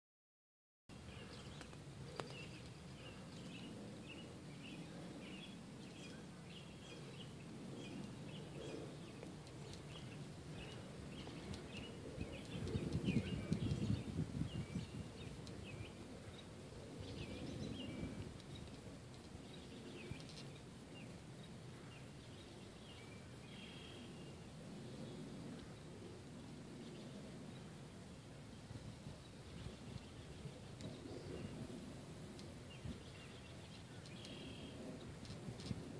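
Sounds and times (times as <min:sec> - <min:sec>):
low rumbling background noise: 0:00.9 - 0:35.9
small birds chirping: 0:00.9 - 0:35.9.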